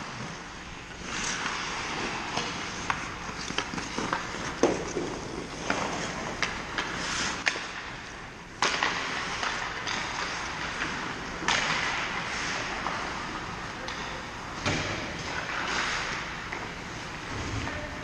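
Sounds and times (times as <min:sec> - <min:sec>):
skates scraping on ice: 0:00.0 - 0:13.7
hockey sticks and puck clacking: 0:00.0 - 0:18.0.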